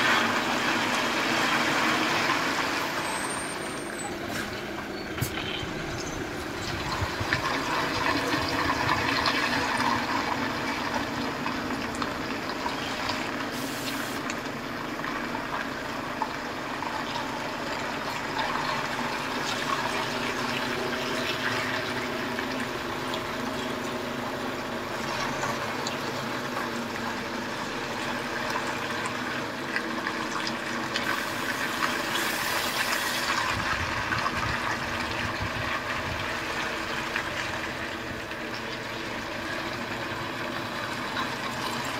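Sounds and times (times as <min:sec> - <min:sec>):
diesel truck engine idling: 0:00.0 - 0:41.9
tyres hissing over slush: 0:13.4 - 0:14.2, 0:31.0 - 0:33.4.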